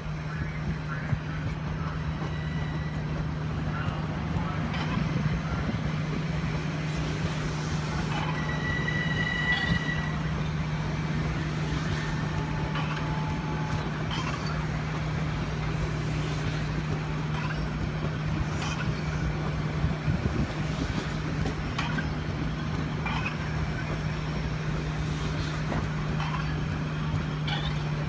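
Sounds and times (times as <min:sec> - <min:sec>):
electric train rolling past: 0:00.0 - 0:28.0
high-pitched wheel squeal: 0:08.2 - 0:10.3.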